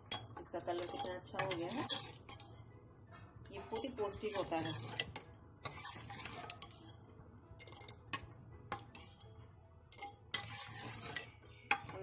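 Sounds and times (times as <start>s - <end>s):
ladle clinking against steel pot: 0.0s - 2.6s, 9.9s - 12.0s.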